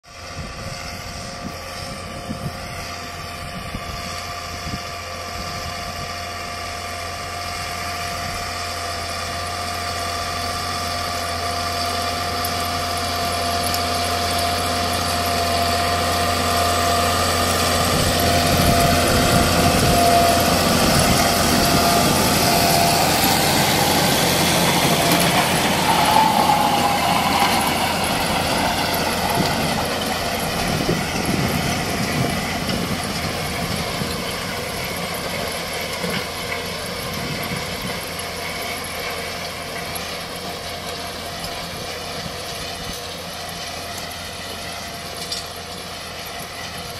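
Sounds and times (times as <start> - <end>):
tractor engine hum: 0.0 - 46.9
thin high whine: 18.6 - 31.1.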